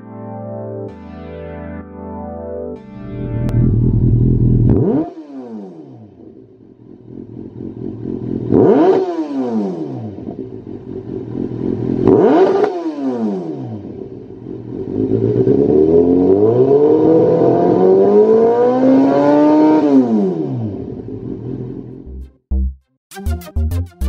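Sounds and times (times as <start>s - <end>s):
motorcycle engine revving: 3.0s - 22.0s.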